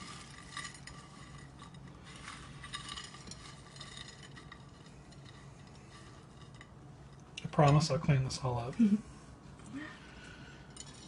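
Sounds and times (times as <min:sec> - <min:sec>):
hands rolling dough in oats: 0:00.0 - 0:07.2
low steady hum: 0:00.0 - 0:11.0.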